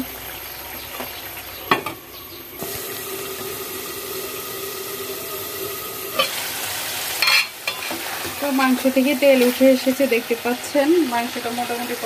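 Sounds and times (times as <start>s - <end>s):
steam hissing and sizzling: 2.6s - 12.0s.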